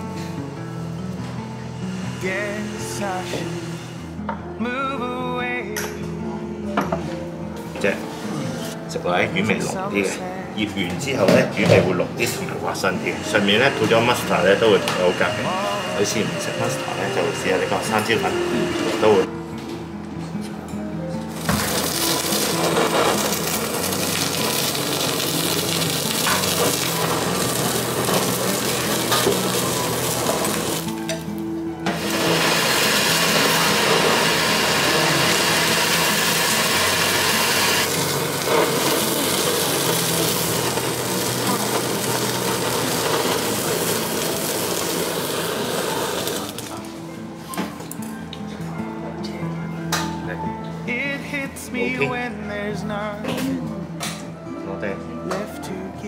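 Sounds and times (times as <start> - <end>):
blowtorch hissing: 0.0 - 4.2, 12.6 - 19.3, 21.3 - 46.8.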